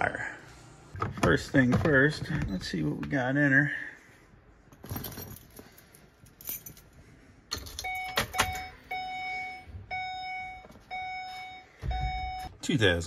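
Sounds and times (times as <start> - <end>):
keys and plastic rattling: 4.7 - 8.7
dashboard warning chime: 7.8 - 13.0.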